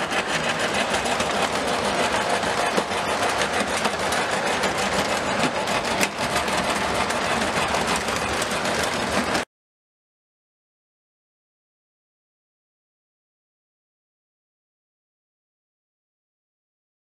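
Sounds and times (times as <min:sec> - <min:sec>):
model train motor hum: 0:00.0 - 0:09.4
model train wheels clattering: 0:00.0 - 0:09.4.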